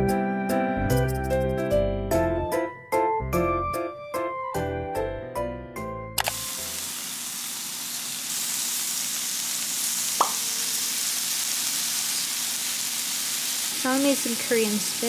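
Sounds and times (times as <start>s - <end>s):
meat sizzling on a grill: 6.2s - 15.0s.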